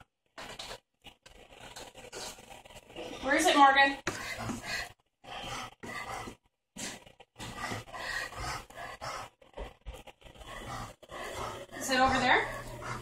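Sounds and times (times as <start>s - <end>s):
dog panting: 4.1s - 13.0s.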